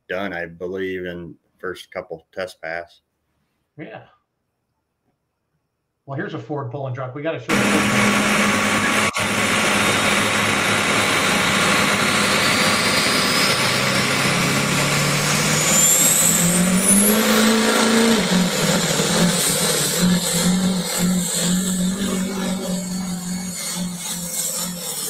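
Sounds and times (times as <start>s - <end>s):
truck engine running hard: 7.5s - 25.0s.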